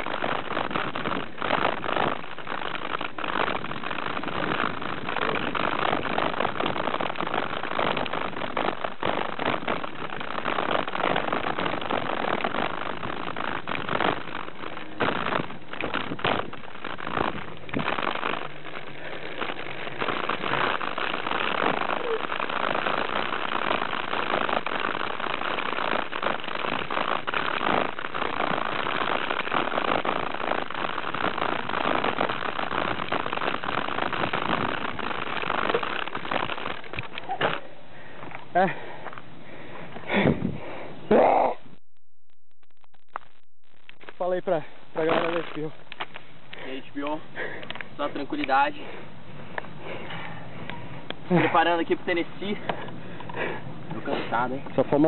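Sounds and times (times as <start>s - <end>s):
bike rattling over bumps: 0.0s - 41.2s, 43.9s - 55.0s
bike tyres rushing on sand: 0.0s - 41.6s.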